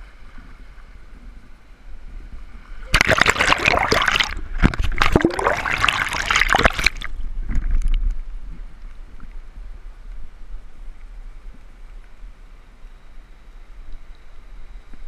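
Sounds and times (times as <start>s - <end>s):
river water splashing and rushing: 2.8s - 7.7s.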